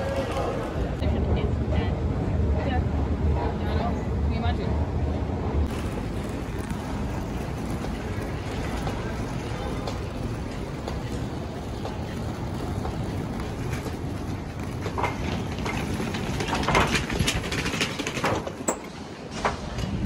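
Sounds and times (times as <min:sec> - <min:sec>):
suitcase wheels rumbling: 0:05.7 - 0:20.0
wheels clacking on ridged mat: 0:05.7 - 0:20.0.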